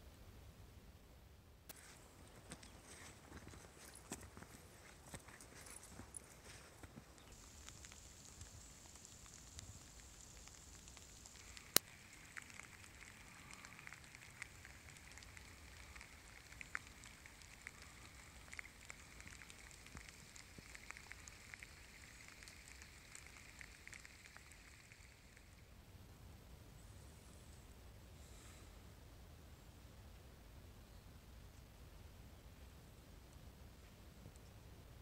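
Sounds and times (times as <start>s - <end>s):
footsteps on dry twigs: 1.7s - 8.7s.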